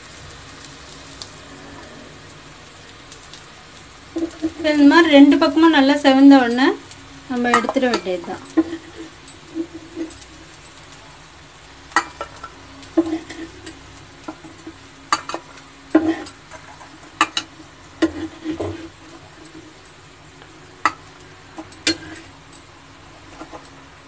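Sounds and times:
oil sizzling: 0.0 - 24.0
metal spatula scraping a pan: 4.1 - 6.6, 7.3 - 10.9, 11.9 - 23.8.

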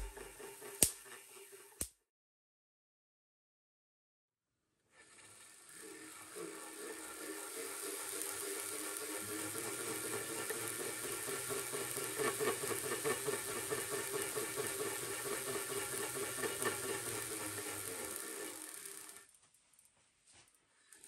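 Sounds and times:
glass discs spinning with a whir: 0.0 - 1.8, 4.9 - 19.6.

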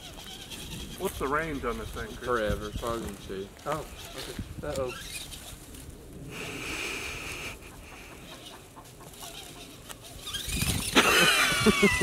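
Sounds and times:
toy truck motor whining: 0.0 - 2.7, 9.2 - 11.2
rooster clucking: 7.3 - 12.0.

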